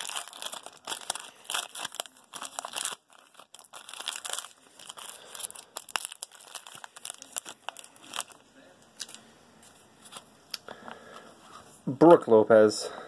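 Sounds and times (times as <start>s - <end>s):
foil wrapper crinkling and tearing: 0.0s - 9.2s.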